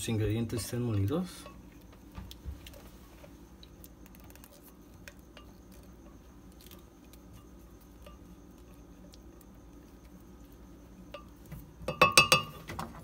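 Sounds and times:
spatula tapping glass: 11.1s - 12.6s.

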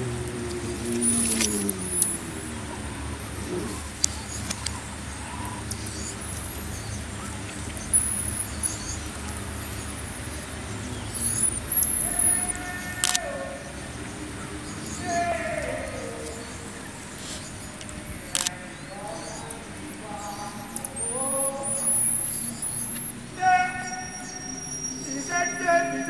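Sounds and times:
sharp clicks: 0.2s - 2.3s, 4.0s - 4.8s, 11.2s - 19.6s
marmosets chirping and whistling: 5.2s - 26.0s
lower wavering call: 11.0s - 26.0s.

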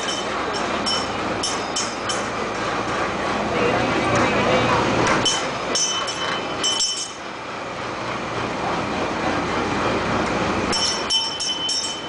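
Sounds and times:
mechanical rumble of ride: 0.0s - 12.0s
small brass bell ringing: 5.3s - 7.2s, 10.7s - 12.0s.

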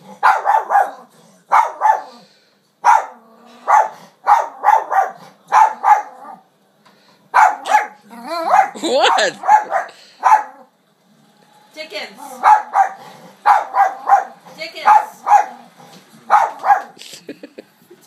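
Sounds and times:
small dog barking: 0.2s - 2.2s, 2.8s - 6.4s, 7.3s - 10.7s, 12.2s - 17.0s.

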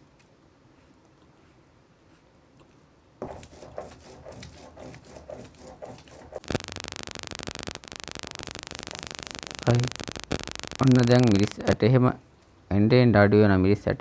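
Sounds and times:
loud steady rasping: 3.2s - 11.6s.

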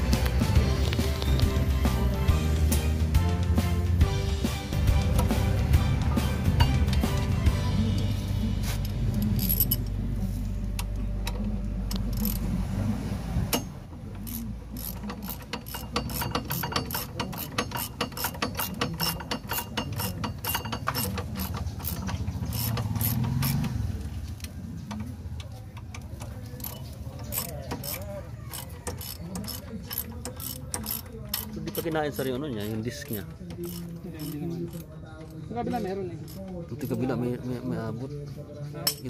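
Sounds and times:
ratchet wrench clicking: 8.8s - 10.0s, 10.7s - 12.5s, 13.5s - 25.0s, 25.7s - 37.2s.

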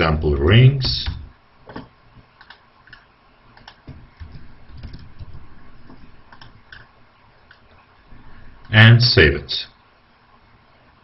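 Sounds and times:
keyboard typing: 2.4s - 3.0s, 3.6s - 6.9s.

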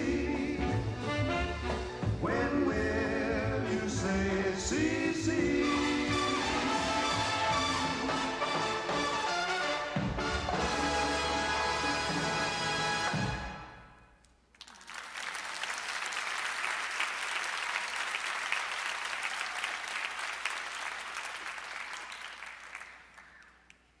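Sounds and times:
audience applauding: 14.5s - 24.0s.

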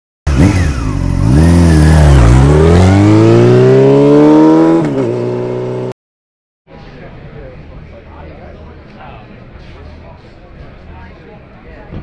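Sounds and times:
racing engine accelerating: 0.3s - 5.9s.

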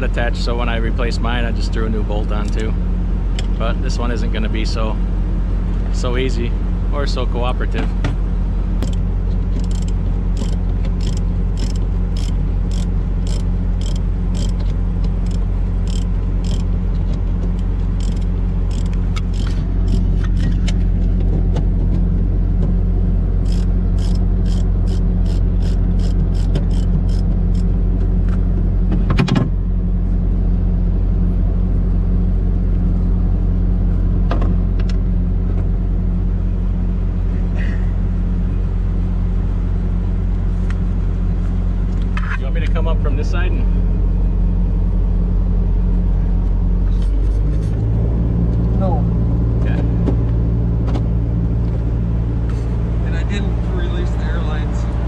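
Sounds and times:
low engine drone: 0.0s - 55.0s
ratchet wrench clicking: 8.8s - 16.7s, 17.9s - 20.6s, 23.4s - 27.7s.

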